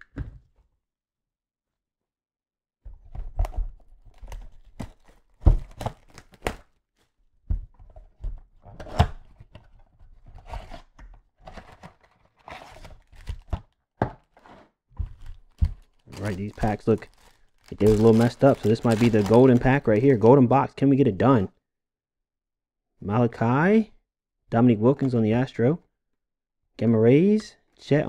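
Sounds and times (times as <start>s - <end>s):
packs tearing and crinkling: 4.1s - 6.6s, 11.6s - 13.7s, 15.2s - 20.2s.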